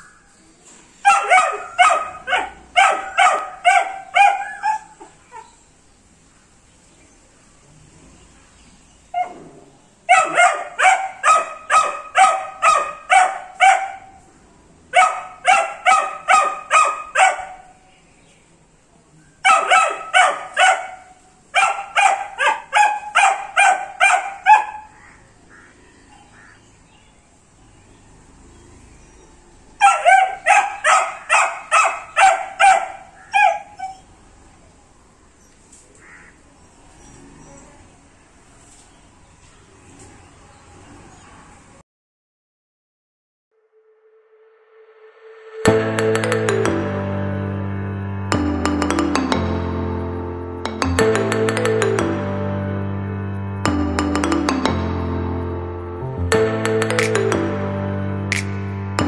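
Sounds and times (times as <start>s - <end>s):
puppy barking: 1.0s - 5.6s, 9.1s - 9.5s, 10.1s - 14.3s, 14.9s - 17.9s, 19.4s - 26.6s, 29.8s - 34.2s.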